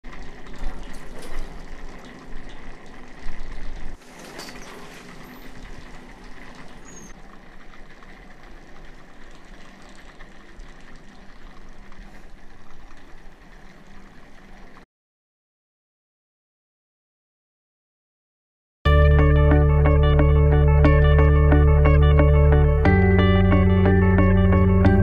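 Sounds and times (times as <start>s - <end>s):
lift cable mechanical hum: 0.0s - 14.8s
heavy low rumble: 18.9s - 25.0s.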